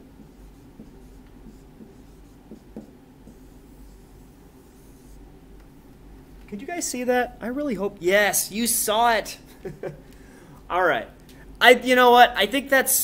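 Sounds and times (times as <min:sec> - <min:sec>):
marker scratching on whiteboard: 0:00.2 - 0:05.3.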